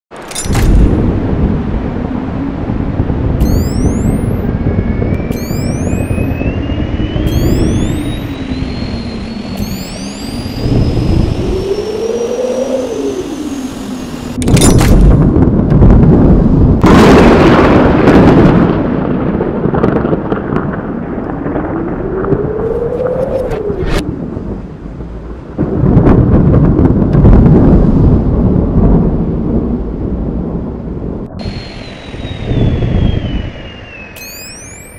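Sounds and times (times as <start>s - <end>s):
low rumble: 0.2s - 34.9s
engine-like tones: 3.4s - 4.5s, 5.1s - 15.1s, 31.3s - 34.9s
high rising whines: 3.4s - 15.3s, 31.3s - 34.9s.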